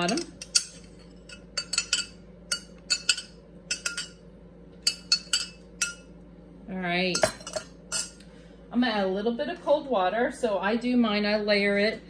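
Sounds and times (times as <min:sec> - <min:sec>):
metal spoon clinking glass: 0:00.0 - 0:04.2, 0:04.8 - 0:06.1, 0:07.1 - 0:08.2.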